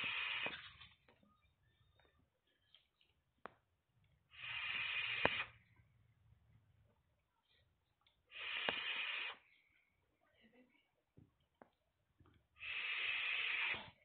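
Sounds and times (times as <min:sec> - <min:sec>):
airy hissing of vape draw: 0:00.0 - 0:00.7, 0:04.3 - 0:05.6, 0:08.3 - 0:09.4, 0:12.6 - 0:14.0.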